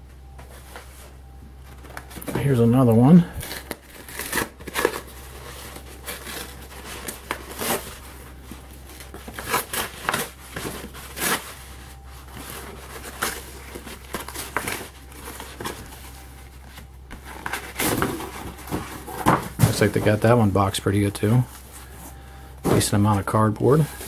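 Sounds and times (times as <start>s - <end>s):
paper envelope ripping: 3.2s - 20.4s.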